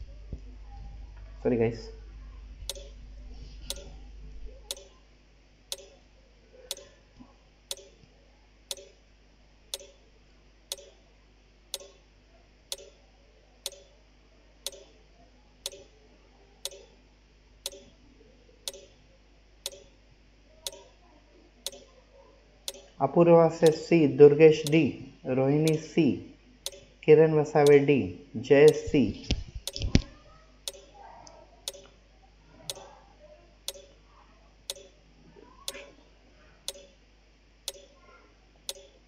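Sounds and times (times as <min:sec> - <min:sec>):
timer ticking: 0:02.7 - 0:03.0, 0:03.7 - 0:03.9, 0:04.7 - 0:04.9, 0:05.7 - 0:06.0, 0:07.7 - 0:07.9, 0:08.7 - 0:09.0, 0:09.7 - 0:10.0, 0:10.7 - 0:11.0, 0:11.8 - 0:12.0, 0:12.7 - 0:13.0, 0:13.6 - 0:13.9, 0:14.7 - 0:14.9, 0:15.6 - 0:15.9, 0:16.7 - 0:16.9, 0:17.7 - 0:17.9, 0:18.7 - 0:19.0, 0:19.6 - 0:19.9, 0:22.7 - 0:22.9, 0:24.6 - 0:24.8, 0:25.6 - 0:25.8, 0:26.7 - 0:26.9, 0:29.6 - 0:29.9, 0:30.7 - 0:30.9, 0:31.7 - 0:31.9, 0:33.7 - 0:33.9, 0:34.7 - 0:34.9, 0:36.7 - 0:36.9, 0:37.7 - 0:37.9, 0:38.7 - 0:39.0.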